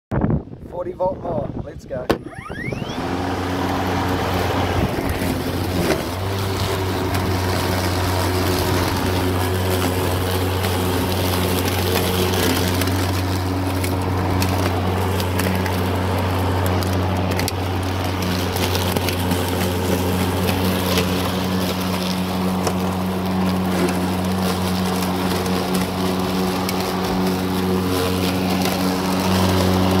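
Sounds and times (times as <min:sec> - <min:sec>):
lawn mower humming: 0:02.1 - 0:30.0.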